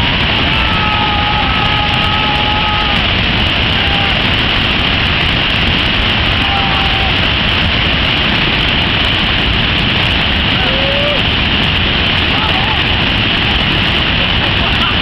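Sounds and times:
waterfall roaring: 0.0s - 15.0s.

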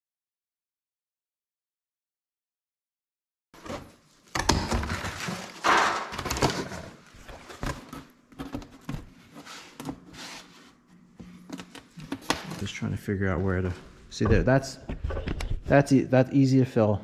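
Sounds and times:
cardboard rustling and scraping: 4.8s - 12.7s.

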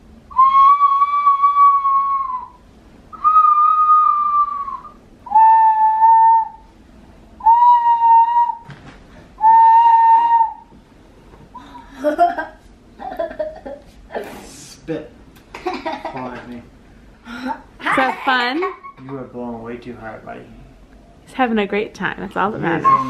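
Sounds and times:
toy whistle blasts: 3.2s - 6.6s.

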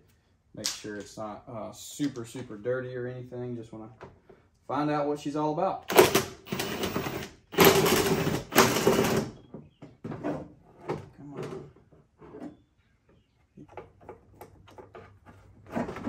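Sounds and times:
cordless drill whining: 5.9s - 9.4s.

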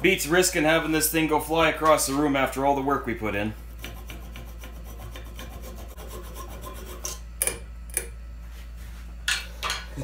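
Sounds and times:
hand saw cutting wood: 3.8s - 7.2s.

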